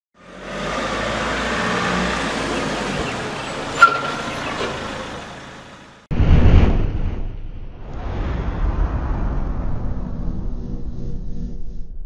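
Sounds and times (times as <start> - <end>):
motor vehicle running: 0.2 - 6.0
short high beep: 3.7 - 4.4.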